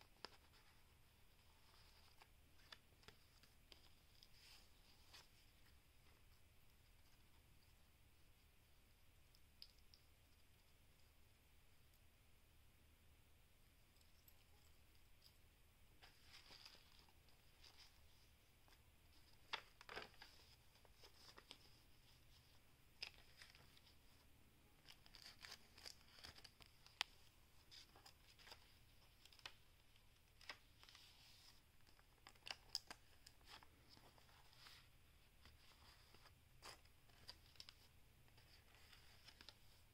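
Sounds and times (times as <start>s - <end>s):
paper rustling and crinkling: 16.0s - 24.2s, 24.8s - 39.9s.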